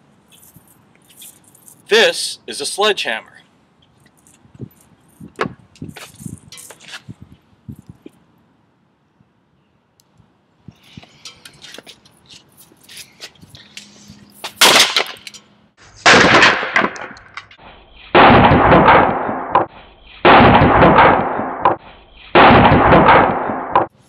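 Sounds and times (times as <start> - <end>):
sledgehammer smashing wood: 16.0 - 17.1, 18.2 - 19.7, 22.4 - 23.9
wood cracking: 16.0 - 17.5.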